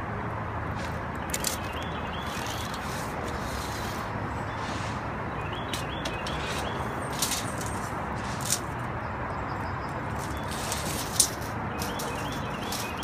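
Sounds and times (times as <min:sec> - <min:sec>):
outdoor background noise: 0:00.0 - 0:13.0
tape measure clicks: 0:01.2 - 0:04.0, 0:05.7 - 0:08.8, 0:10.2 - 0:13.0.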